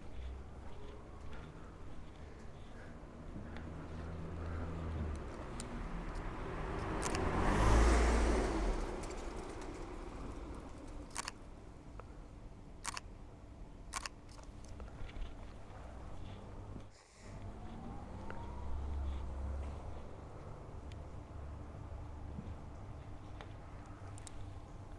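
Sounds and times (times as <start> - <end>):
car passing: 0.0 - 11.4, 17.0 - 24.9
camera shutter clicks: 7.0 - 7.2, 11.1 - 11.4, 12.8 - 13.1, 13.9 - 14.5.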